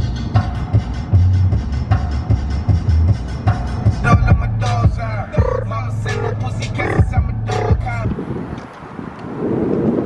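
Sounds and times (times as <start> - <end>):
rapping over a beat: 3.9 - 8.2
kick drums: 4.0 - 5.6
deep bass note: 4.0 - 8.2.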